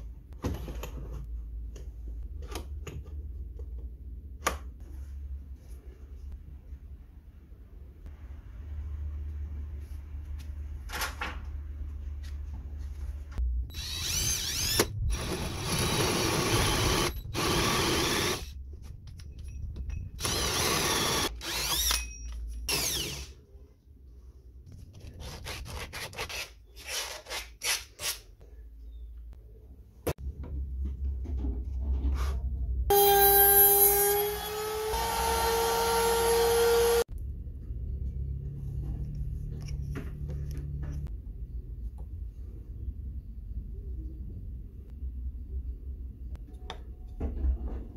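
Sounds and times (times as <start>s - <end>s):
drill cutting through wood: 13.7s - 18.5s, 20.2s - 22.0s, 22.7s - 23.3s, 32.9s - 37.0s
power tool motor whine: 32.9s - 37.0s.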